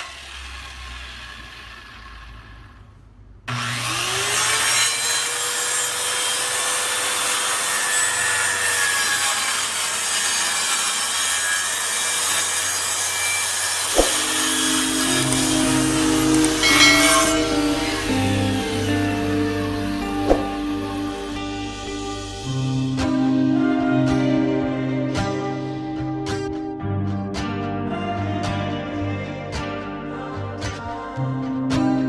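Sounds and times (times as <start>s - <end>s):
power saw cutting plywood: 0.0s - 2.9s, 3.5s - 22.4s
sharp knock: 14.0s - 14.5s, 20.3s - 20.6s.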